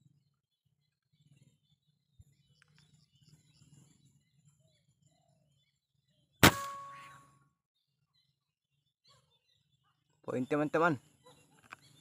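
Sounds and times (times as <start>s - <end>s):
faint bird chirps: 0.0s - 12.0s
rifle shot with metallic ring: 6.4s - 7.2s.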